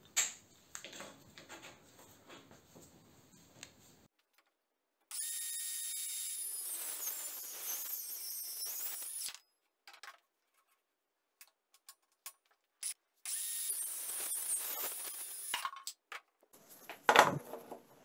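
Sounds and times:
circular saw cutting wood: 5.1s - 9.4s, 12.8s - 15.6s.

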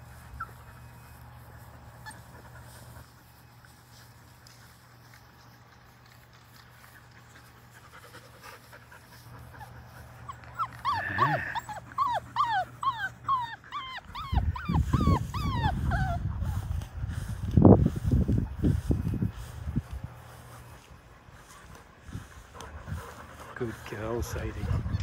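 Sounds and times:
puppy whimpering: 9.6s - 16.6s, 24.4s - 25.0s.

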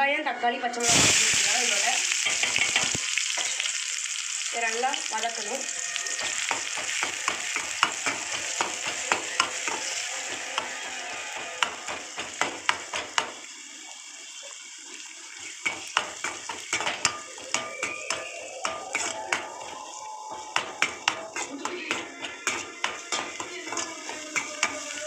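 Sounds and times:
vegetables sizzling in hot oil: 0.8s - 25.0s
metal ladle scraping a pan: 5.4s - 13.4s, 15.3s - 25.0s.

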